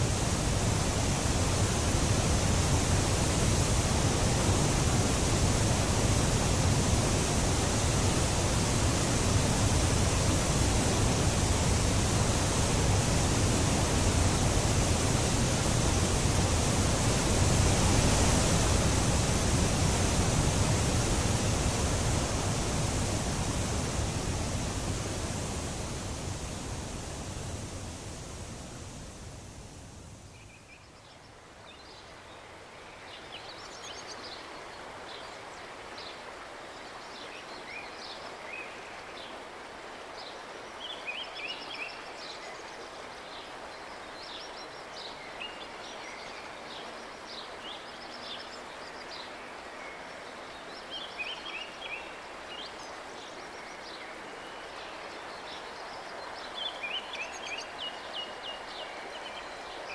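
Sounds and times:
river water flowing: 0.0s - 59.9s
songbirds chirping: 40.2s - 59.9s.

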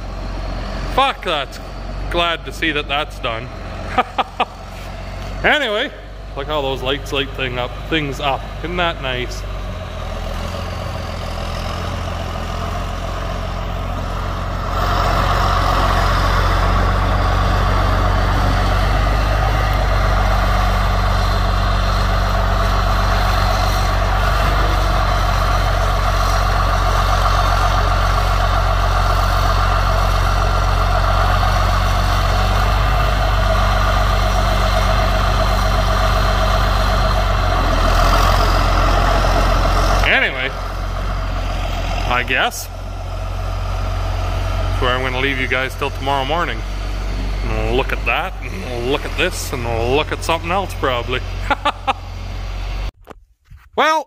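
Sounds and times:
tractor diesel engine running: 0.0s - 53.2s.

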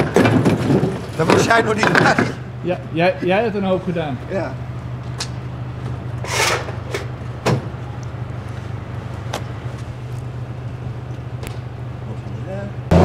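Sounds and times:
truck engine idling: 0.0s - 13.0s
trailer doors metal clunks: 5.2s - 7.9s.

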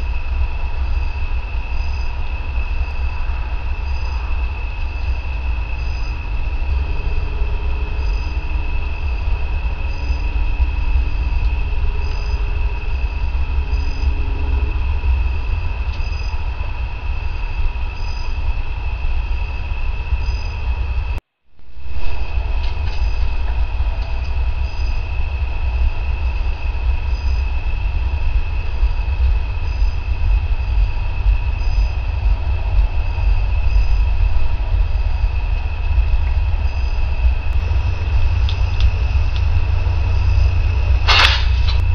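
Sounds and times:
crickets trilling: 0.0s - 41.9s
low rumble: 0.0s - 41.9s.

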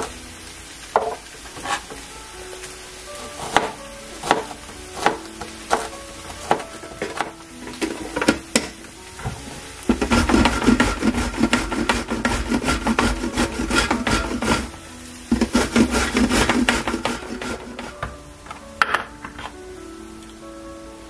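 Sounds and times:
potato grating rasps: 9.9s - 18.0s.

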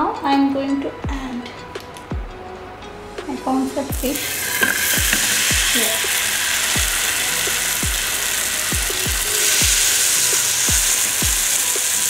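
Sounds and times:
music with deep bass thuds: 0.1s - 12.0s
fish sizzling in butter: 4.0s - 12.0s.

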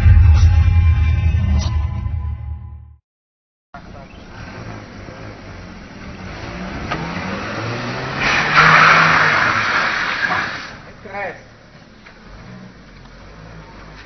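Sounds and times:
car engine revving: 3.8s - 10.9s.

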